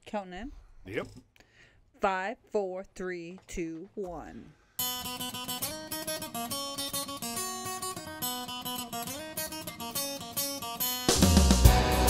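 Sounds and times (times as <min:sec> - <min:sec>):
solo guitar picking and strumming: 0:04.8 - 0:12.0.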